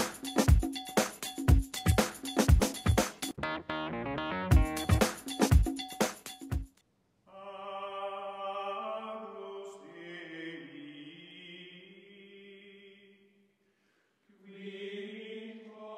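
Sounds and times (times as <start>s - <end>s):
choir-like chanting music: 7.3s - 13.3s, 14.3s - 15.9s.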